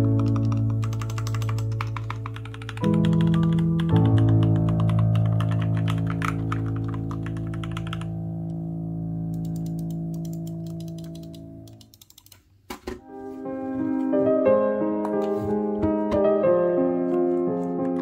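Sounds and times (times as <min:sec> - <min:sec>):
mechanical keyboard typing: 0:00.0 - 0:08.1, 0:09.3 - 0:12.5.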